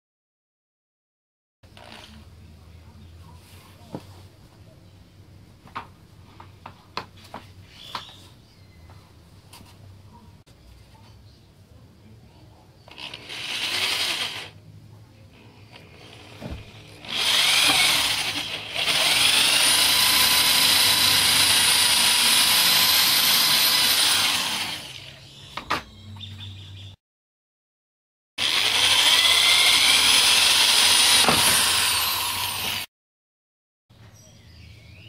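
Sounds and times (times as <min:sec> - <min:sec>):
electric drill boring into plastic: 0:12.9 - 0:14.5, 0:15.8 - 0:25.1, 0:28.4 - 0:32.9.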